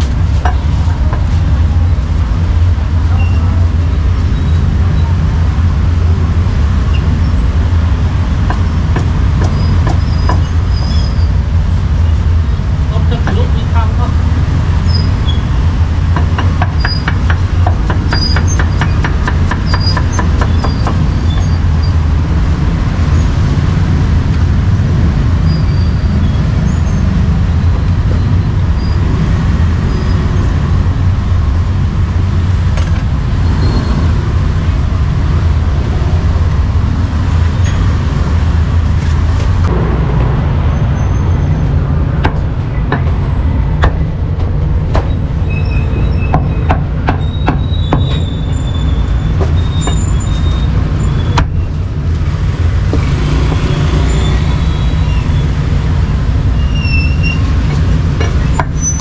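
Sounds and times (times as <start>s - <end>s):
street traffic rumble: 0.0s - 59.0s.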